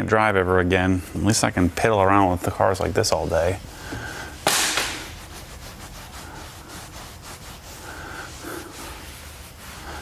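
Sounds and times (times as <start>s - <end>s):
towel wiping leather seat: 2.2s - 10.0s.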